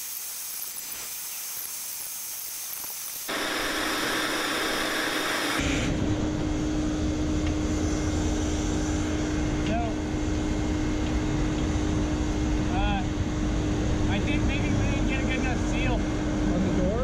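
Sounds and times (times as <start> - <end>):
rushing hiss of air and steam: 0.0 - 6.0
steady hum: 3.3 - 17.0.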